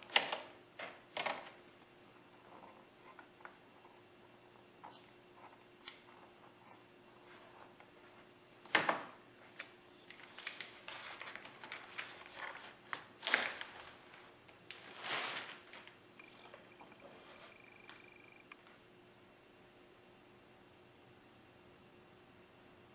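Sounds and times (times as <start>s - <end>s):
paper rustling and crinkling: 9.4s - 17.5s.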